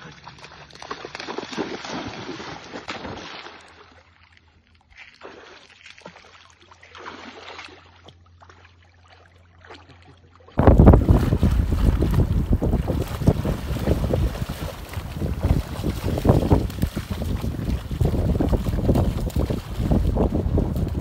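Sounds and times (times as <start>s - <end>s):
dog splashing through water: 0.0s - 4.0s, 5.0s - 21.0s
wind buffeting microphone: 10.6s - 21.0s.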